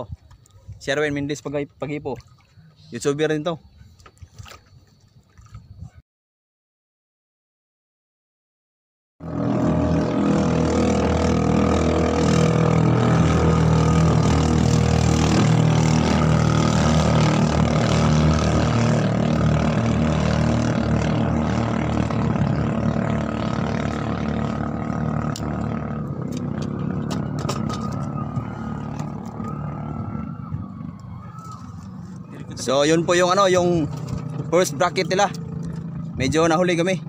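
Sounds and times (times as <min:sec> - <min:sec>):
small boat engine running: 0:09.2 - 0:37.0.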